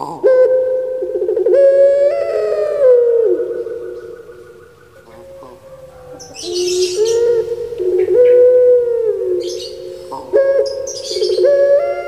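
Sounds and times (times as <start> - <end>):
dove cooing: 0.0 - 12.0.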